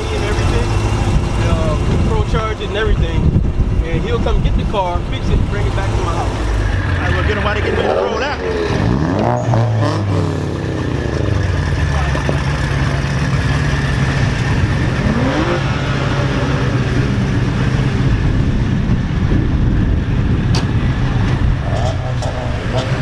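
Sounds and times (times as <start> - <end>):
car engine idling: 0.0 - 9.0, 9.8 - 23.0.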